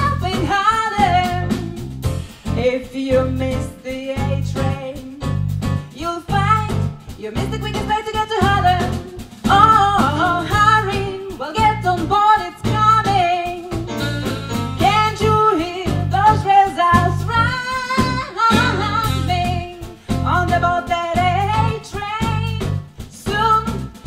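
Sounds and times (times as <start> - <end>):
woman singing: 0.0 - 1.8, 2.5 - 13.9, 14.8 - 24.0
swing jazz band playing: 0.0 - 24.0.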